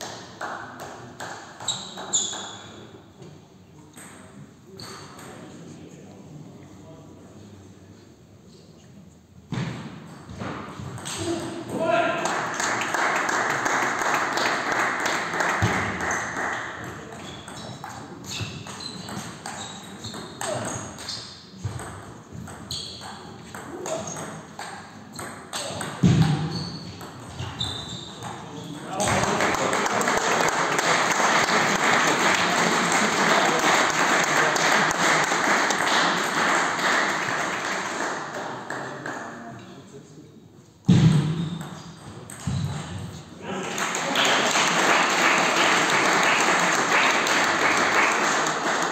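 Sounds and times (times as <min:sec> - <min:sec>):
murmur of hall noise: 0:00.0 - 0:48.9
spectators applauding: 0:12.2 - 0:17.1, 0:29.0 - 0:39.0, 0:43.6 - 0:48.9.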